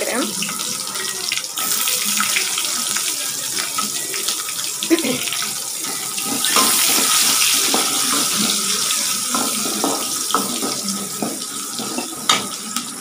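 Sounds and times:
onion sizzling in hot oil: 0:00.0 - 0:13.0
ladle scraping a pan: 0:05.8 - 0:12.6.

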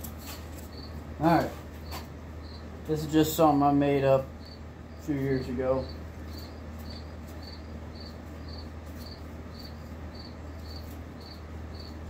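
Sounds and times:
cricket chirping: 0:00.7 - 0:01.0, 0:01.8 - 0:02.7, 0:04.4 - 0:05.2, 0:05.8 - 0:12.0.

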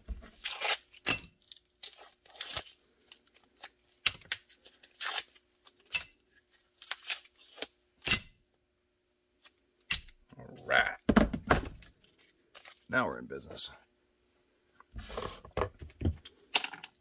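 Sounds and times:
plastic crinkling: 0:00.2 - 0:07.8
tape tearing: 0:00.3 - 0:05.8, 0:06.6 - 0:07.8.

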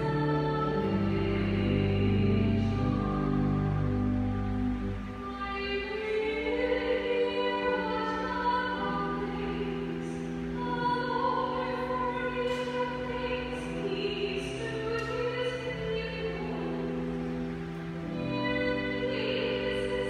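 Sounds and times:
organ chords: 0:00.0 - 0:20.0.

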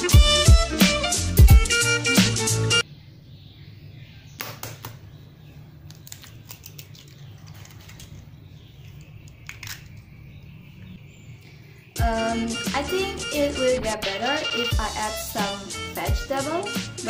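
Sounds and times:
music: 0:00.0 - 0:02.8, 0:12.0 - 0:17.0
eggshell breaking clicks: 0:05.8 - 0:10.1.

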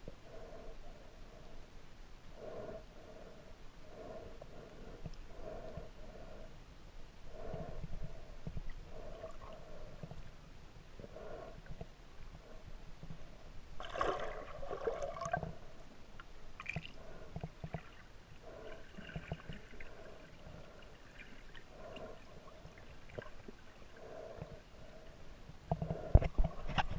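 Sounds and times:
clicks and knocks underwater: 0:16.6 - 0:17.9, 0:25.7 - 0:26.9.

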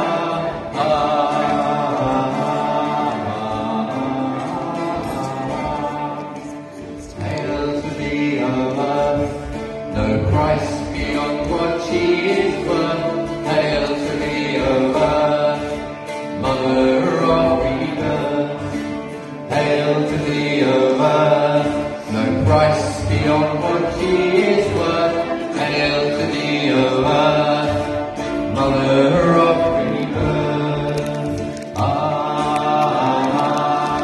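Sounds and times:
plucked string instrument: 0:00.0 - 0:34.0
group chanting: 0:19.5 - 0:34.0.

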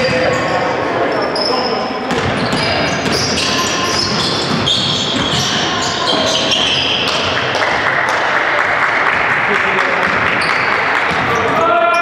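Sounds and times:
sneakers squeaking on court: 0:00.0 - 0:07.6, 0:10.1 - 0:12.0
basketball bouncing on court: 0:02.1 - 0:08.2, 0:10.0 - 0:11.6.

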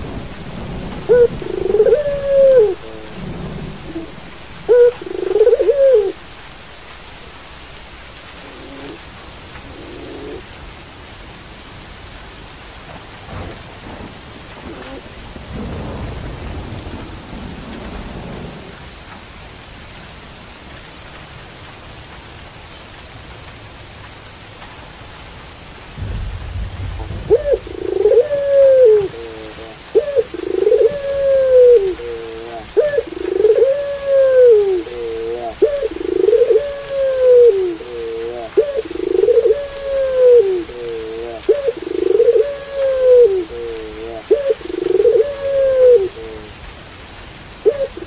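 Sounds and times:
dove cooing: 0:00.0 - 0:06.2, 0:08.4 - 0:09.0, 0:09.6 - 0:10.5, 0:14.6 - 0:15.1, 0:27.0 - 0:46.6, 0:47.6 - 0:48.0
steady rain: 0:00.0 - 0:48.0
low rumble: 0:26.0 - 0:29.1.

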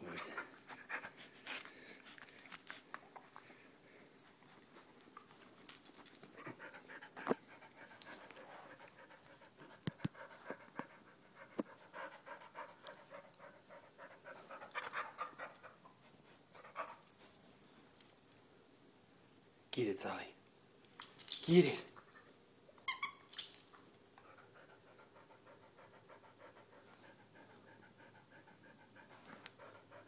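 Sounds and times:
dog panting: 0:06.4 - 0:17.0, 0:24.2 - 0:30.0.

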